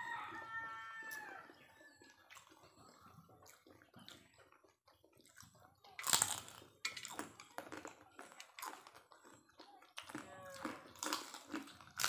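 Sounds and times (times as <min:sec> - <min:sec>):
people eating and sucking food: 0:00.0 - 0:12.0.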